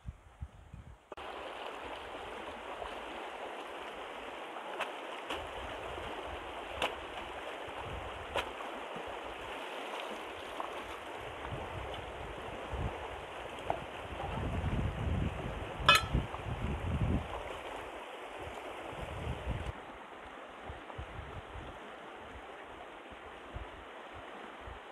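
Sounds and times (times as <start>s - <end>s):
river water rushing over rocks: 1.2s - 11.4s, 15.9s - 16.2s
water splashes: 1.2s - 24.9s.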